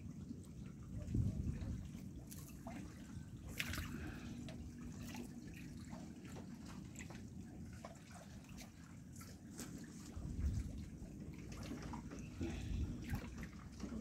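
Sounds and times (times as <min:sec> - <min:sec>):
low rumble of wind: 0:00.0 - 0:14.0
water drips and splashes: 0:00.0 - 0:14.0
sharp splash: 0:02.3 - 0:04.2.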